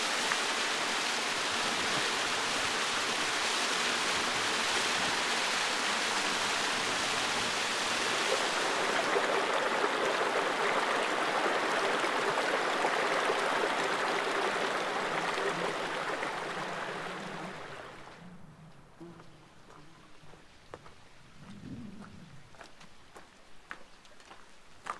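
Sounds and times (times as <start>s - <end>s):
stream rushing over rocks: 0.0s - 18.2s.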